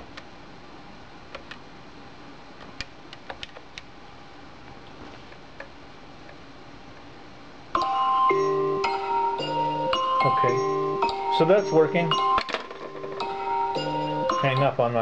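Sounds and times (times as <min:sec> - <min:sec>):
marimba-like phone ringtone: 0:07.8 - 0:15.0.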